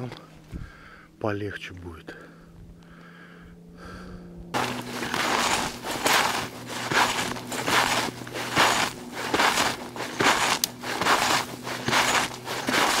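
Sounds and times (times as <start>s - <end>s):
soft breathing: 0.5s - 1.2s, 2.1s - 4.4s
footsteps crunching through snow: 4.6s - 13.0s.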